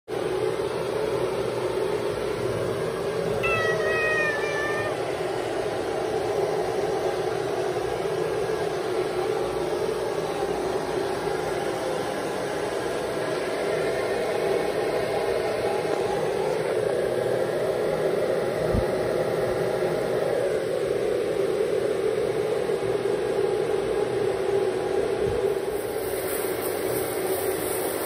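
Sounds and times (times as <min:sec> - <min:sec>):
steady whirring noise: 0:00.1 - 0:28.0
cat meowing: 0:03.4 - 0:05.1.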